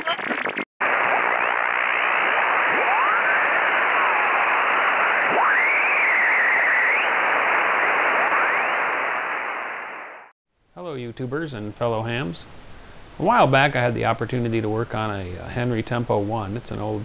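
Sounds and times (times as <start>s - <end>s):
radio hiss and static: 0.0s - 10.3s
gliding whistling tones: 1.2s - 9.1s.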